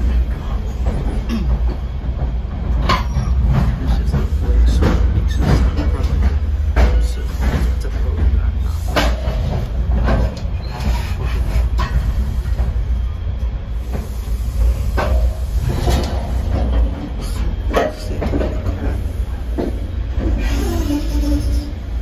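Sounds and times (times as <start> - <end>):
sharp knocks and clanks: 0.0 - 13.0, 13.8 - 20.4
train car rumbling on track: 0.0 - 22.0.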